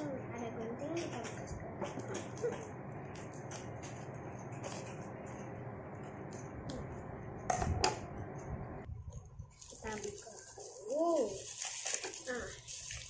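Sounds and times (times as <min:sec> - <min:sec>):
plastic crinkling: 0:09.5 - 0:13.0.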